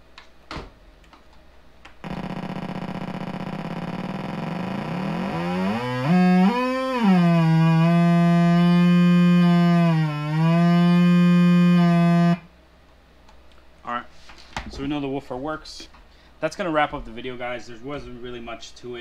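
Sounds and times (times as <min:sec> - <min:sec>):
buzzy subwoofer test tone: 0:02.0 - 0:12.5.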